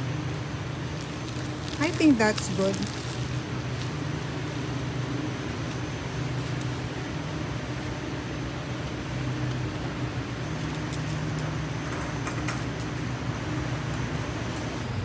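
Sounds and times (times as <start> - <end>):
shopping cart rolling on concrete: 0.0 - 14.8
low hum of large store: 0.0 - 15.0.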